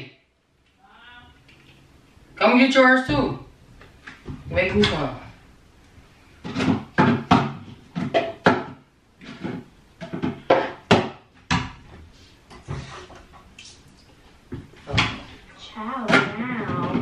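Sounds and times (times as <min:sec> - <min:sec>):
cabinet doors knocking and clattering: 0:06.4 - 0:11.8.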